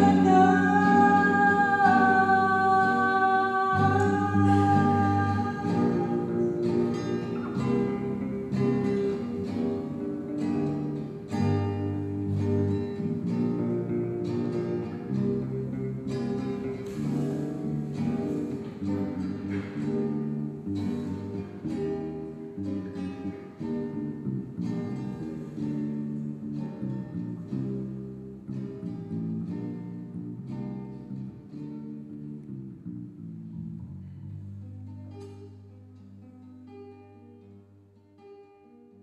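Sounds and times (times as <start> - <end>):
electric bass guitar low notes: 0.0 - 35.7
nylon-string acoustic guitar: 0.0 - 39.0.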